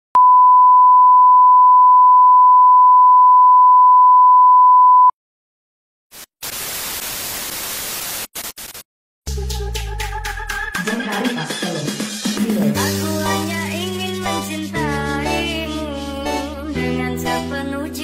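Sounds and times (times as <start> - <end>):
high beep tone: 0.2 - 5.1
static hiss: 6.1 - 8.8.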